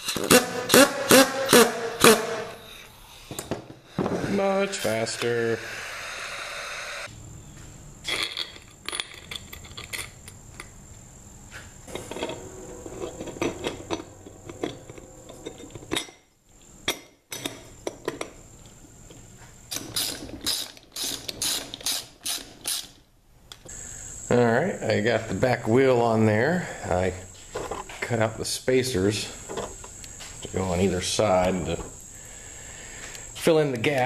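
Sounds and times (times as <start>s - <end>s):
ratchet wrench clicking: 19.7s - 23.0s.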